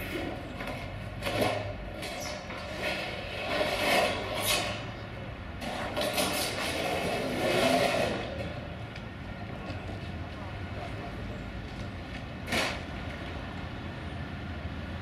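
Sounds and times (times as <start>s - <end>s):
tram wheels scraping on metal: 0.0s - 8.8s, 12.4s - 13.2s.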